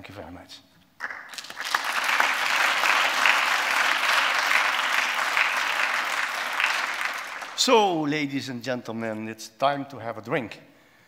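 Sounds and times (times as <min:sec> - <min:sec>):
audience applauding: 0:01.0 - 0:07.7.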